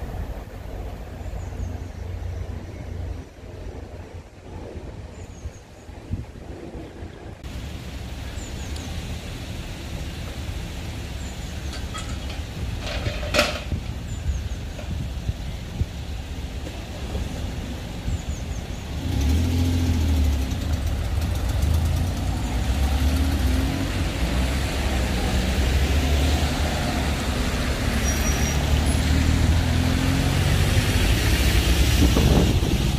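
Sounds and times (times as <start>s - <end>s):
cars passing close by: 7.4s - 32.9s.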